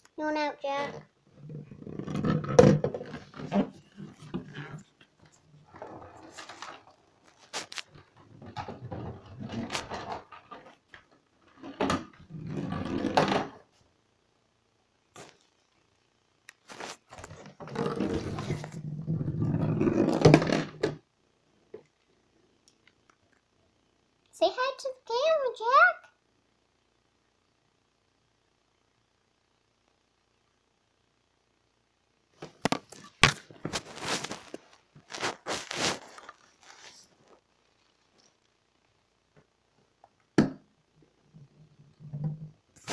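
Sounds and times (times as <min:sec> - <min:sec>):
plastic ball rolling in bathtub: 0:00.8 - 0:13.7, 0:17.0 - 0:21.1, 0:41.3 - 0:42.9
plastic scraping and rustling: 0:00.8 - 0:13.7, 0:16.6 - 0:21.0, 0:32.4 - 0:38.3, 0:41.9 - 0:42.9.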